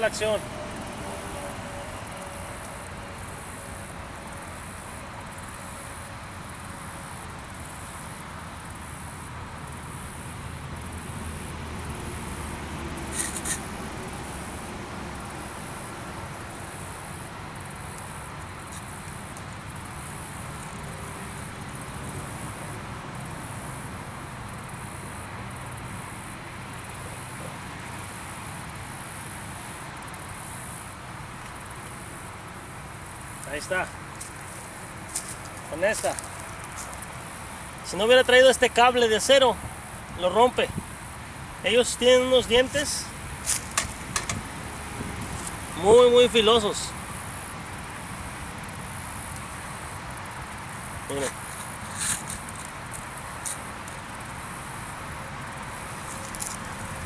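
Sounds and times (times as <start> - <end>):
insects chirping: 0.0 - 57.0
sharp clicks: 43.5 - 44.5.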